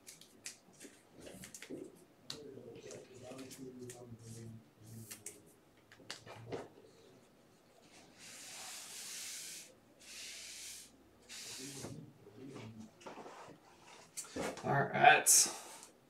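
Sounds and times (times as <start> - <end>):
cloth wiping across tabletop: 7.8 - 14.6.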